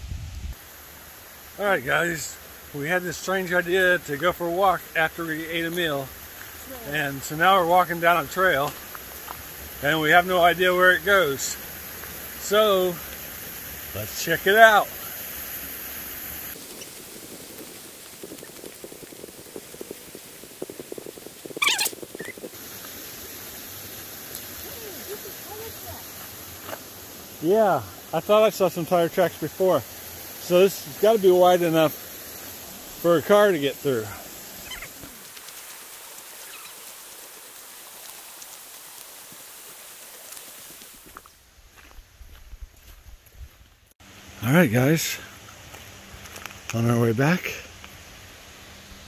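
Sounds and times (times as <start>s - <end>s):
steady high hiss: 0.0s - 49.0s
creek running over rocks: 0.5s - 49.0s
footsteps crunching on gravel: 26.1s - 26.9s, 40.4s - 43.8s, 45.6s - 46.8s.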